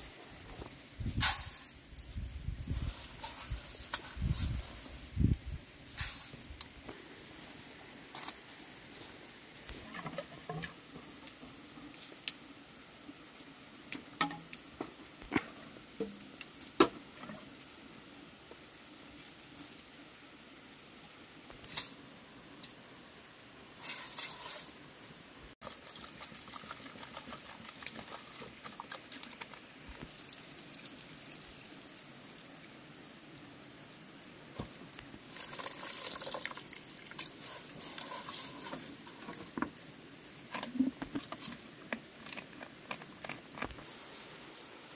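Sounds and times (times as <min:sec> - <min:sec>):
rice grains rustling in metal pot: 0:00.0 - 0:12.2, 0:23.7 - 0:24.9, 0:35.2 - 0:39.8.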